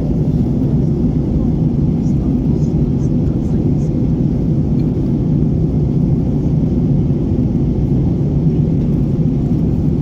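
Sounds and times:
airliner cabin rumble: 0:00.0 - 0:10.0.

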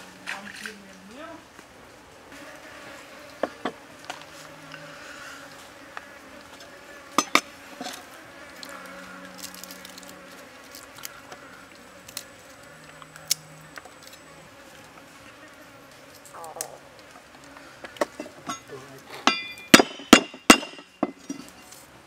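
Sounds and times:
flies and bees buzzing: 0:00.0 - 0:22.0.

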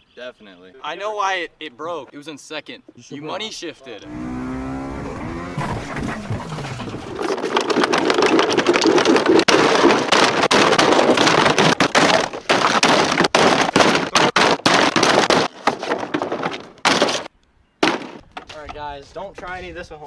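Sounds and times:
plastic toy smashing on asphalt: 0:05.5 - 0:18.6
plastic cracks and knocks: 0:05.6 - 0:18.6.

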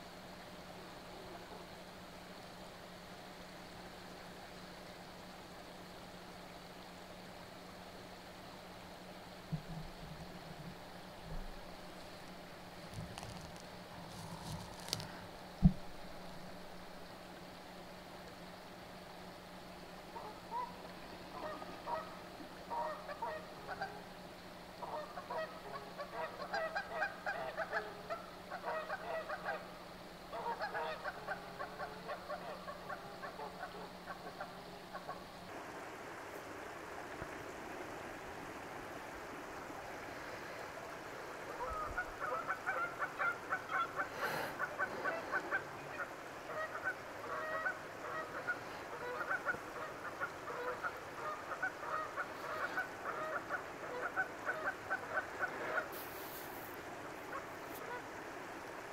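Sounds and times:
geese honking: 0:20.1 - 0:24.1, 0:24.8 - 0:29.7, 0:30.3 - 0:35.3, 0:41.5 - 0:58.1.

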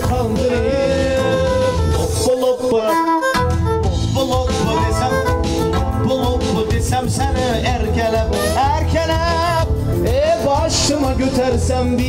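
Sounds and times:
steady bass beat: 0:00.0 - 0:02.3, 0:03.4 - 0:12.0
keyboard: 0:00.0 - 0:12.0
violin melody: 0:01.2 - 0:06.2.

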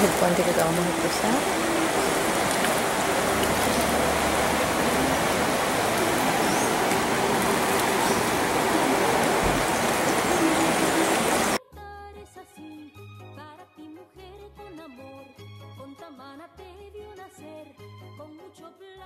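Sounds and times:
river water rushing: 0:00.0 - 0:11.6
faint music: 0:00.0 - 0:12.1.

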